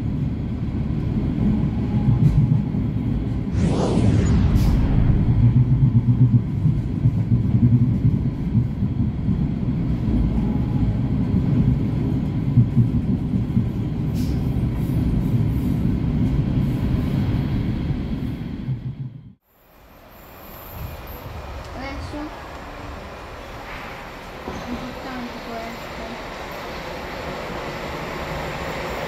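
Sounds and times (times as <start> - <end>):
train wheels on rails: 0.0 - 3.5, 20.0 - 29.0.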